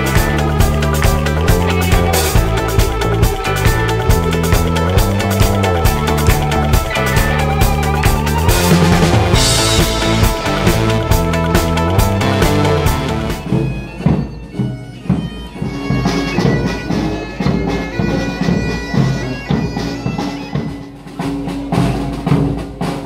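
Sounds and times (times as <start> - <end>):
bass drum beats: 0.0 - 14.4
bagpipes playing: 0.0 - 21.0.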